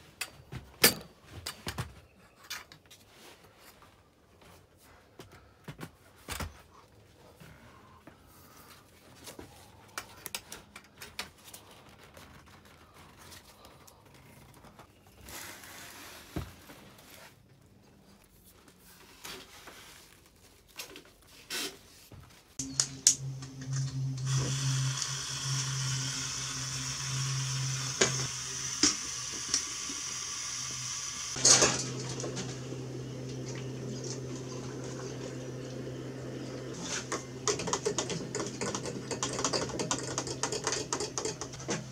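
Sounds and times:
camp stove hissing: 22.6 - 41.9.

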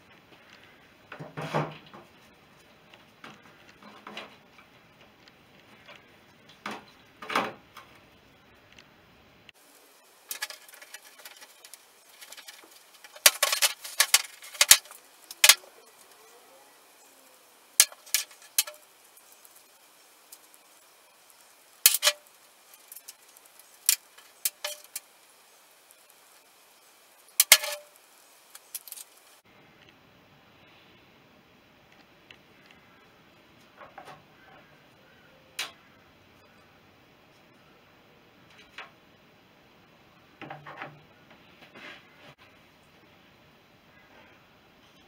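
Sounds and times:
metal nuts and washers clinking: 10.3 - 16.1, 23.8 - 25.0, 27.4 - 27.9, 28.5 - 29.2.

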